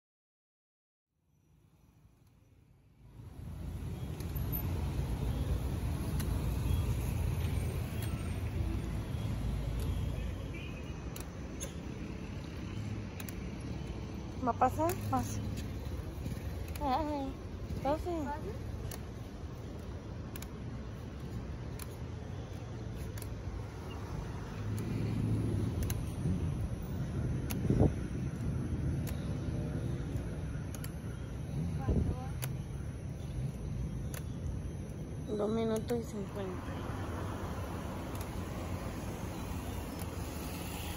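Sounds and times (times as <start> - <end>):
street traffic rumbling: 1.5 - 40.9
faint clicks: 11.0 - 14.0, 38.0 - 38.4
cars driving past: 22.8 - 30.7, 35.9 - 40.9
vehicle passing: 23.5 - 30.4.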